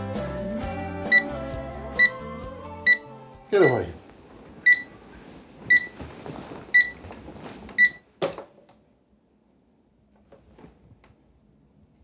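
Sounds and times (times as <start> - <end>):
alarm clock beeping: 3.6 - 3.9, 4.7 - 4.9, 5.7 - 5.9.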